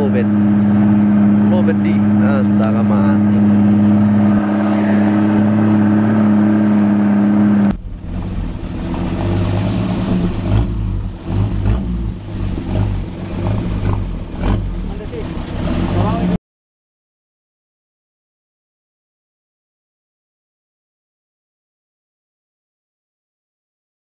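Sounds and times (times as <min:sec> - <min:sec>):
rough uneven low rumble: 0:00.0 - 0:16.4
vehicle engine drone: 0:00.0 - 0:16.4.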